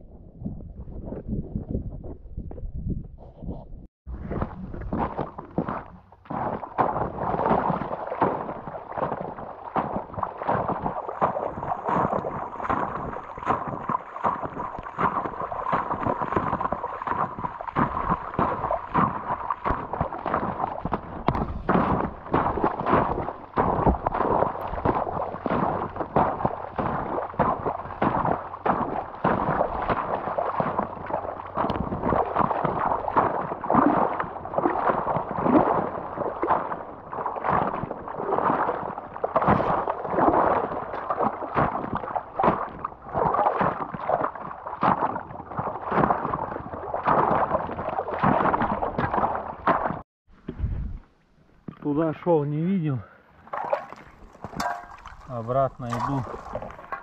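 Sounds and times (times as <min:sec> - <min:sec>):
boots splashing through water: 0:04.1 - 0:50.0, 0:53.3 - 0:57.0
ice crunching: 0:04.2 - 0:34.8, 0:53.5 - 0:57.0.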